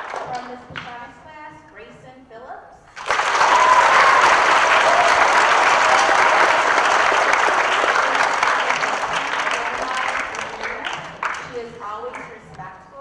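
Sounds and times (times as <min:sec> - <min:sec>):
children applauding: 0:03.0 - 0:11.5.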